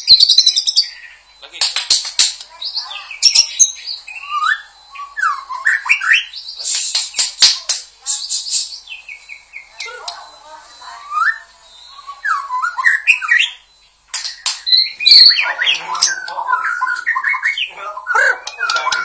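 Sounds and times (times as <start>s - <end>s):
harsh rasping bird calls: 0.0s - 19.0s
bird singing whistles: 3.2s - 7.3s, 8.1s - 19.0s.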